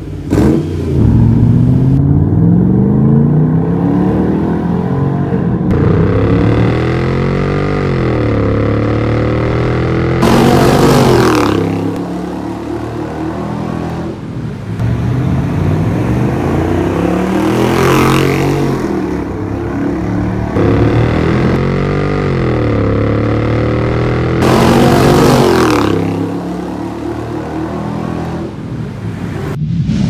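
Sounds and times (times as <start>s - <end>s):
car engine revving past: 10.2s - 14.2s, 23.4s - 28.6s.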